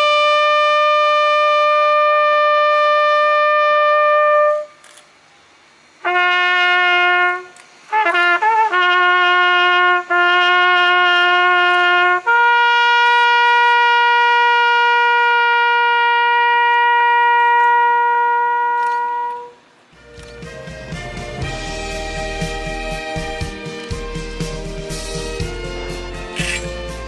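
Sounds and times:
solo trumpet military call: 0:00.0 - 0:05.0, 0:06.0 - 0:27.0
music: 0:20.0 - 0:27.0.

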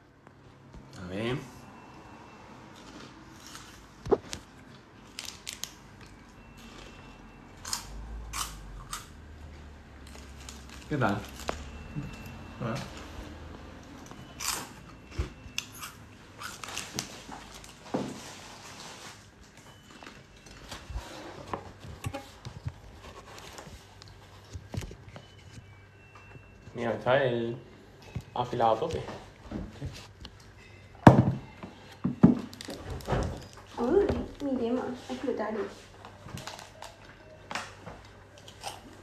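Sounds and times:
crunching chews: 0:02.7 - 0:07.0, 0:07.6 - 0:09.2, 0:14.0 - 0:14.8, 0:15.5 - 0:17.8, 0:38.4 - 0:39.0.

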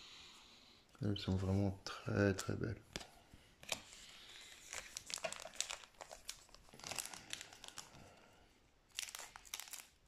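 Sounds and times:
foil wrapper crinkling: 0:03.7 - 0:08.2, 0:08.9 - 0:10.0.

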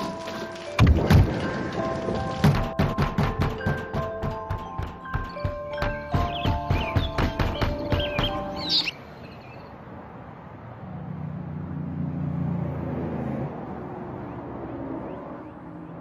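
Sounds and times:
music: 0:00.0 - 0:08.9.

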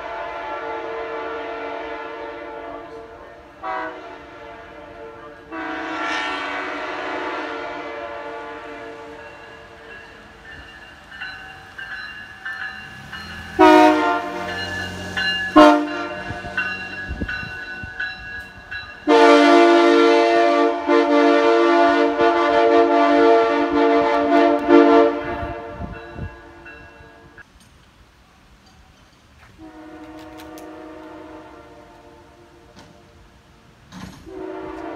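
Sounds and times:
locomotive air horn blasts: 0:00.0 - 0:09.7, 0:13.5 - 0:17.4, 0:19.0 - 0:27.3, 0:29.6 - 0:33.2, 0:34.2 - 0:34.9.

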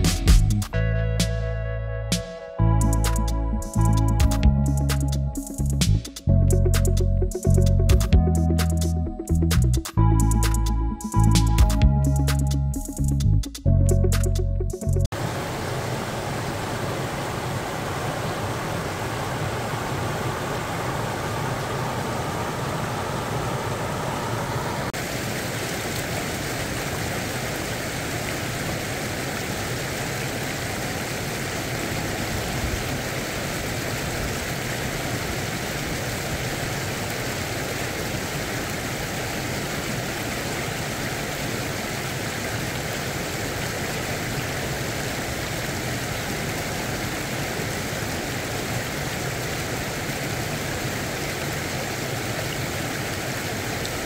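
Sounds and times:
water rushing over weir: 0:15.1 - 0:54.0.

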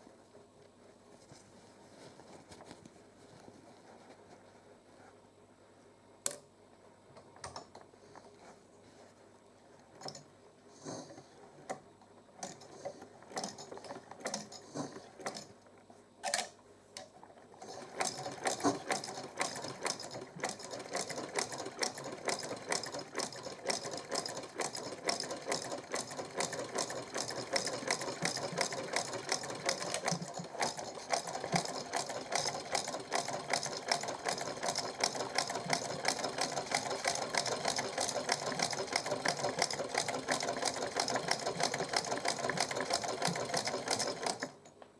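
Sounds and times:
sewing machine stitching: 0:12.4 - 0:15.6, 0:17.6 - 0:44.7.

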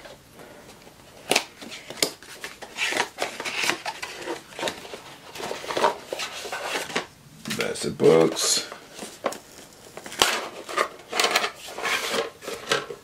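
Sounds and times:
packaging scraping rustle: 0:01.0 - 0:13.0.

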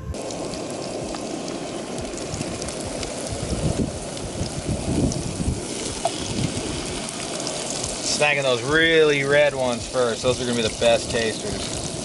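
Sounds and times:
onions sizzling in a frying pan: 0:00.2 - 0:12.0.

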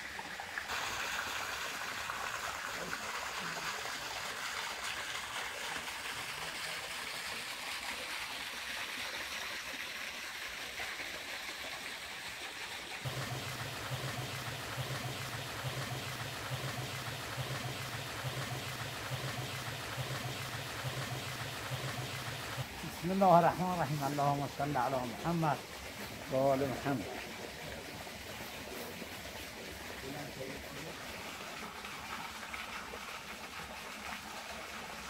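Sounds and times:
low pulsing hum: 0:13.0 - 0:23.1
hose pouring into metal pot: 0:13.0 - 0:27.1
water running: 0:13.0 - 0:35.0.

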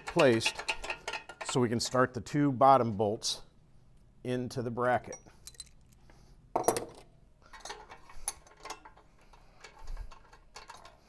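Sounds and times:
metal clanks and clinks: 0:00.0 - 0:02.0, 0:05.1 - 0:05.9, 0:06.6 - 0:11.0.

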